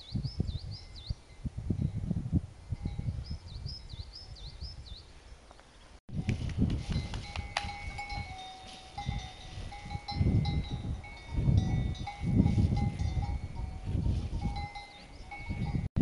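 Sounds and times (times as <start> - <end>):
livestock bell clanking: 7.0 - 15.9.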